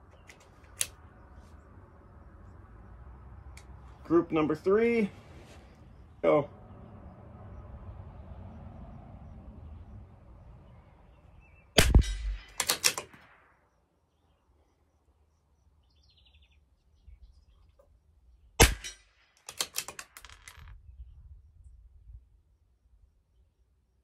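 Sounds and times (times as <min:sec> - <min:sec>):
metallic clicks of rifle bolt: 0:00.1 - 0:01.0, 0:11.9 - 0:13.3, 0:18.6 - 0:20.7
rifle shots: 0:11.8 - 0:13.6, 0:18.6 - 0:20.2.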